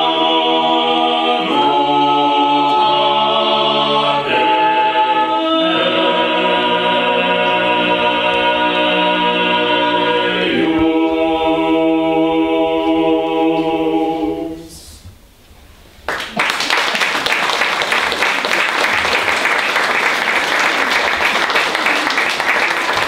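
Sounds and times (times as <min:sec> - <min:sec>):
a cappella vocal ensemble chord: 0:00.0 - 0:15.1
audience applause: 0:16.1 - 0:23.0.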